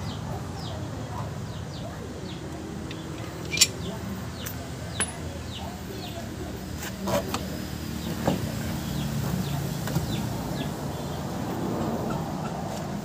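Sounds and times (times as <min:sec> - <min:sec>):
light metal clinks and knocks: 0:02.9 - 0:05.3.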